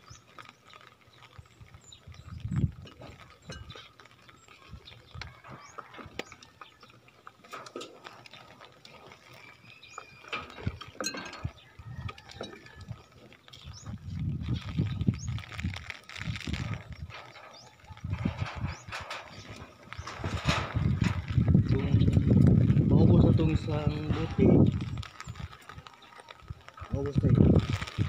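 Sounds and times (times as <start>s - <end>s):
hands rustling potting soil: 0.0s - 28.0s.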